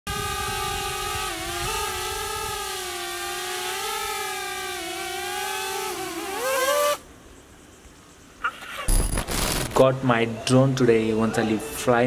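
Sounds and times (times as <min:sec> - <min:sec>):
drone propellers buzzing: 0:00.1 - 0:07.0, 0:08.9 - 0:09.8.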